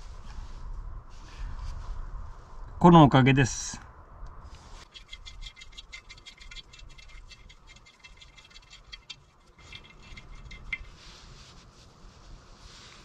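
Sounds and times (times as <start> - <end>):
metallic ticking and rattling nut: 4.8 - 11.0.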